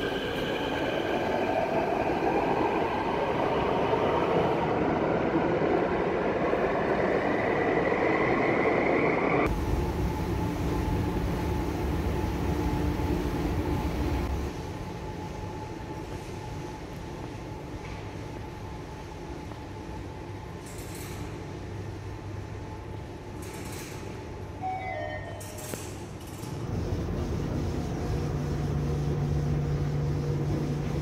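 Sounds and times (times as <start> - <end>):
train rumble: 26.5 - 31.0
steady low hum: 26.6 - 31.0.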